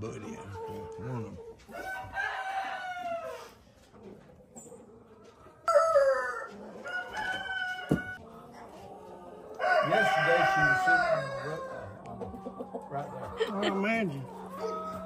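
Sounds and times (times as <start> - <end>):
rooster crowing: 1.7 - 3.5, 5.6 - 8.2, 9.6 - 11.9.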